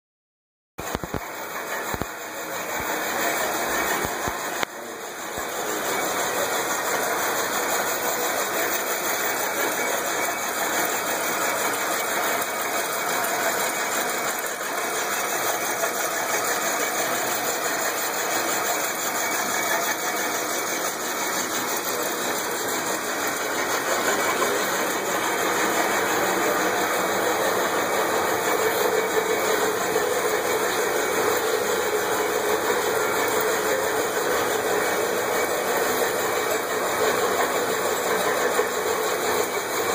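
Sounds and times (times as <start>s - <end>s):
engine mechanical whirring and clatter: 0.8s - 39.9s.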